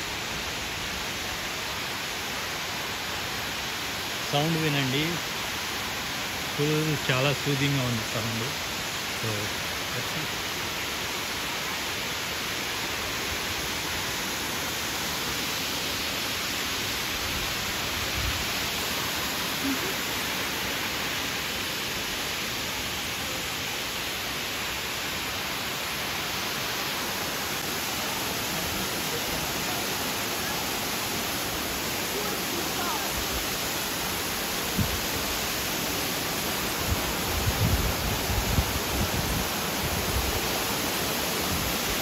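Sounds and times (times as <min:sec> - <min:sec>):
waterfall rushing: 0:00.0 - 0:42.0.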